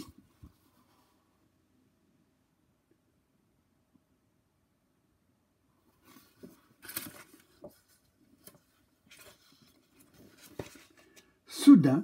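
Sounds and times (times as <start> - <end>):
paper rustles: 6.0 - 11.4.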